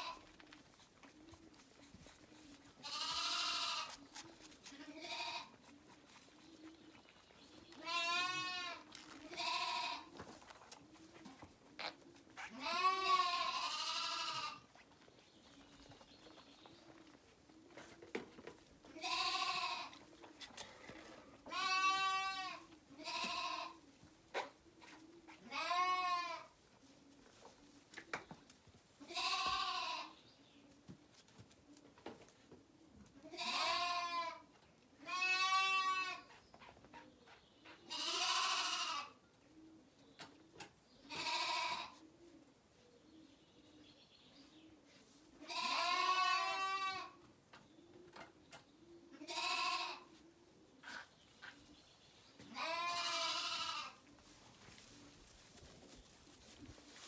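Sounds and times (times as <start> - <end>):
lambs bleating: 2.8 - 4.0, 4.7 - 5.6, 7.7 - 10.1, 12.4 - 14.7, 19.0 - 20.0, 21.5 - 23.8, 25.4 - 26.5, 29.0 - 30.2, 33.3 - 34.4, 35.0 - 36.3, 37.9 - 39.1, 41.1 - 42.0, 45.4 - 47.2, 49.2 - 50.1, 52.5 - 54.0.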